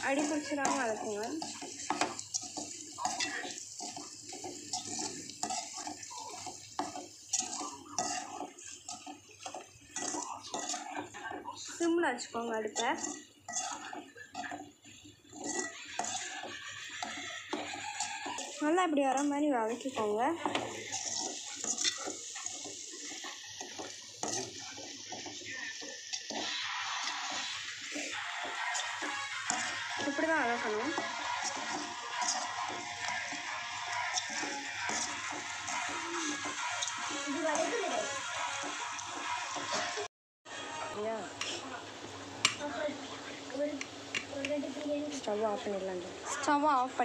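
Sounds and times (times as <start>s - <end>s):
spatula scraping metal pan: 0.0s - 40.1s
wet frying sizzle: 0.0s - 47.0s
spatula clinking against pan: 0.2s - 11.1s, 12.8s - 14.7s, 15.3s - 19.3s, 20.4s - 37.8s.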